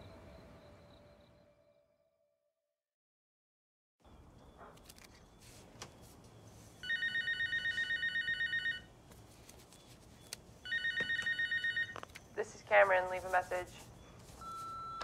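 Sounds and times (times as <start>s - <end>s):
electronic telephone ringing: 6.8s - 8.9s, 10.6s - 12.0s.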